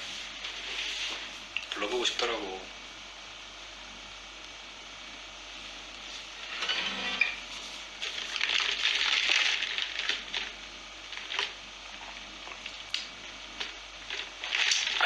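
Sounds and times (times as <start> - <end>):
rustling handling noise: 7.4 - 10.5, 13.6 - 15.0.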